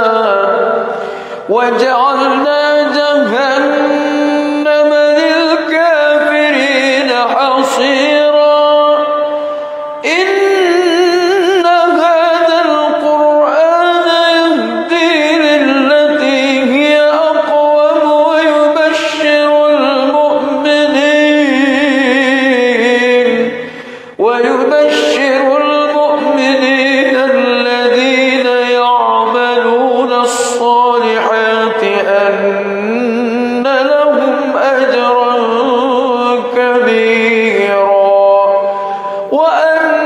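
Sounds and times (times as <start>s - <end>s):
man's melodic recitation: 0.0s - 40.0s.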